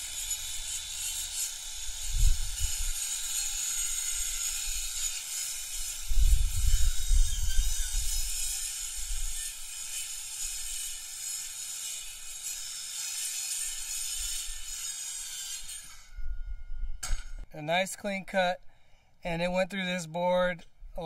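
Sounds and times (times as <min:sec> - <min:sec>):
circular saw cutting board: 0:00.0 - 0:16.2.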